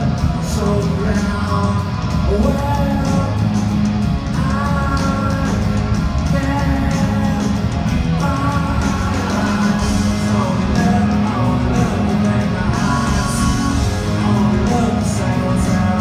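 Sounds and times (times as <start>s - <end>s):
electric guitar: 0.0s - 16.0s
live rock band playing: 0.0s - 16.0s.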